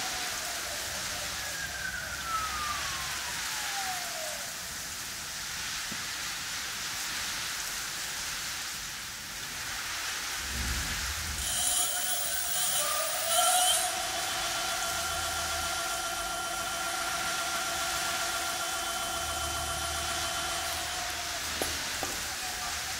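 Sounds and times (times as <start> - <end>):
steady hiss: 0.0 - 22.9
electric motor whine: 10.5 - 22.9.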